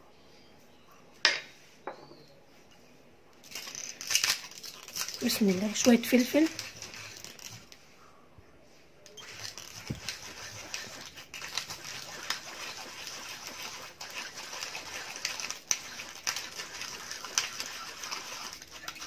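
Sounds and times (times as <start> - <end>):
pepper mill grinding: 3.4 - 7.8, 9.1 - 19.0.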